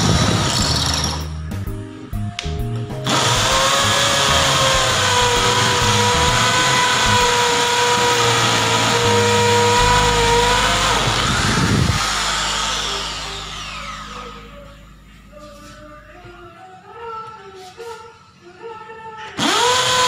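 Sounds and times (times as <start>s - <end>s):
drill whining into concrete: 0.0s - 1.3s, 3.1s - 14.5s, 19.4s - 20.0s.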